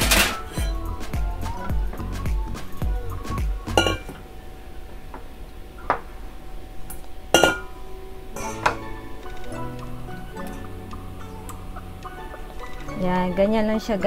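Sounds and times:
kitchenware clinking on table: 0.0s - 0.8s, 3.8s - 4.2s, 7.3s - 7.8s, 8.4s - 8.8s
metal bowl set down: 0.0s - 0.8s, 3.8s - 4.2s, 7.4s - 7.8s.

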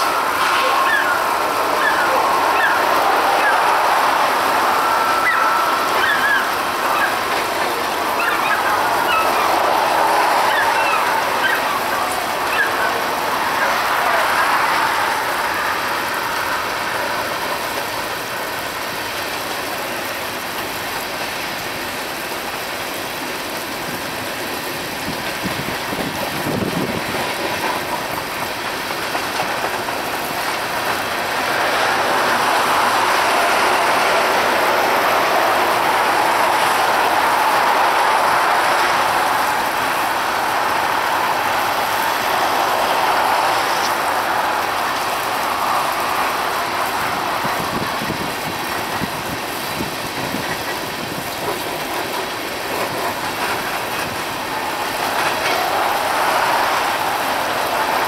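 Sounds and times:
train wheels clattering on rail: 0.0s - 58.0s.

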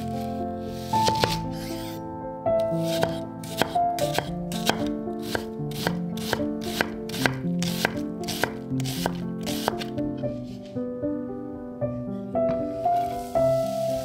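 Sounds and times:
background music: 0.0s - 14.0s
knife chopping on wooden board: 1.0s - 1.8s, 2.8s - 9.9s.

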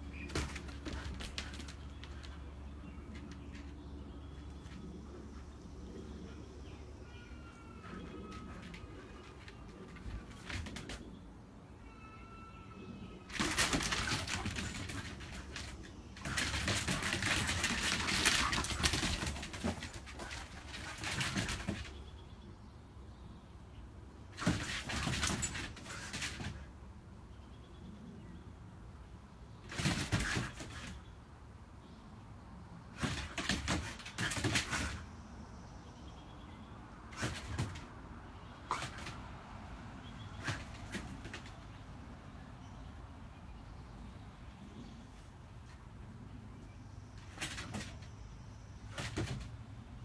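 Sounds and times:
dog paws scrabbling on deck boards: 0.0s - 5.6s, 7.8s - 11.2s, 13.3s - 22.2s, 24.3s - 26.7s, 29.6s - 31.1s, 32.9s - 35.2s, 37.1s - 39.3s, 40.1s - 41.9s, 47.1s - 49.7s
paws scrabbling on wooden boards: 0.1s - 5.0s, 13.4s - 22.0s.

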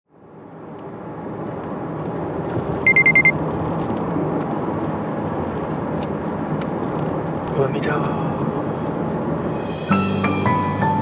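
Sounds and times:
road noise inside moving car: 0.1s - 11.0s
short high electronic beeps: 2.9s - 3.3s.

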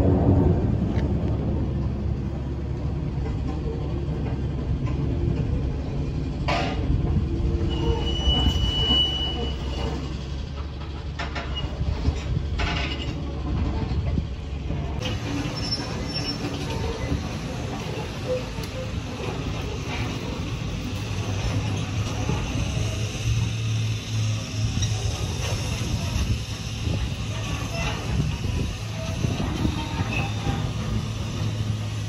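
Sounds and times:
distant jet engine rumble: 0.0s - 9.0s.

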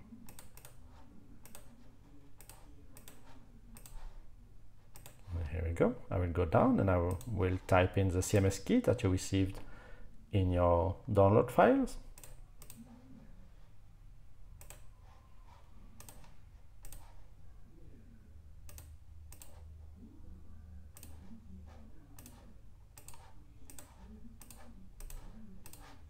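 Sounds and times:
low steady hum: 0.0s - 26.0s.

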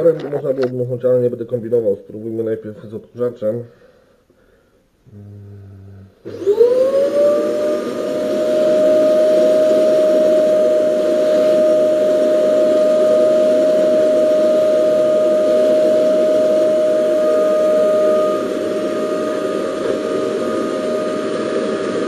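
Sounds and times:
vacuum cleaner whining: 5.8s - 22.0s.

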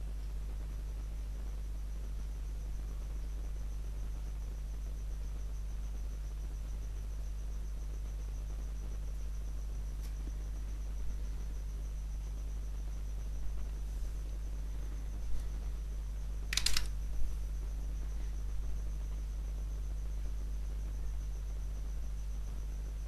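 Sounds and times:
faint high-pitched whine: 0.0s - 23.0s
low electrical hum: 0.0s - 23.0s
clicks: 16.5s - 16.9s.

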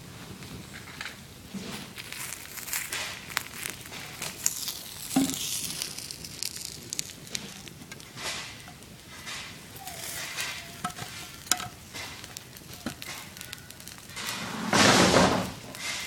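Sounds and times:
flames crackling and popping: 0.0s - 16.0s.

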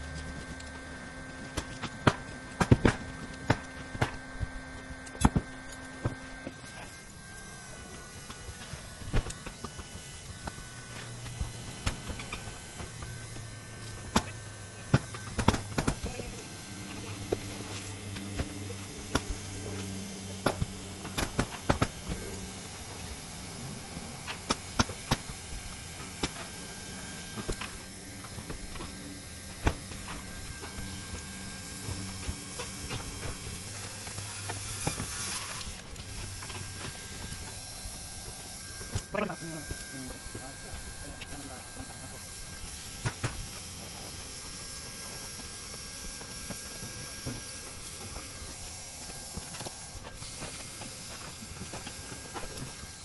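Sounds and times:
low hum: 0.0s - 53.0s.

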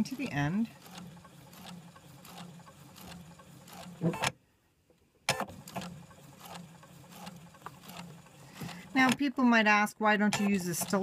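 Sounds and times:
sewing machine running: 0.0s - 4.1s, 5.5s - 9.1s, 10.5s - 11.0s.

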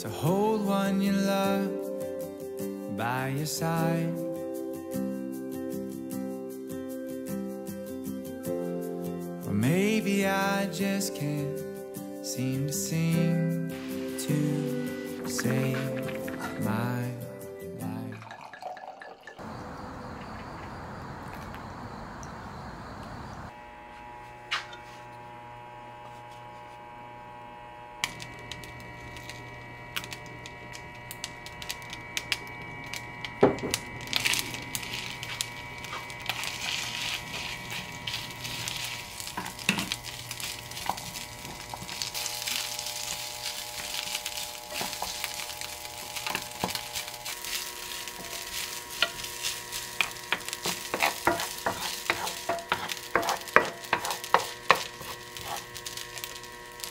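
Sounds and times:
rice sizzling in frying pan: 9.7s - 17.4s, 28.0s - 56.9s
spatulas scraping a pan: 13.7s - 16.7s, 35.0s - 56.4s
steady hum: 21.9s - 56.9s.

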